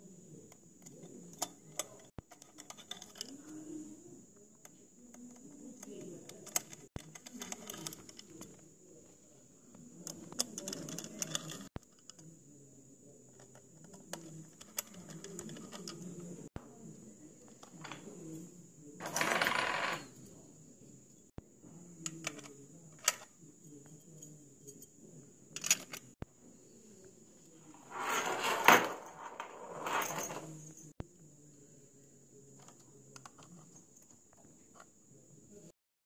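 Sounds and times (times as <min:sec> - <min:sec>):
screwdriver clicks and scrapes: 0:05.2 - 0:08.6, 0:10.0 - 0:12.2.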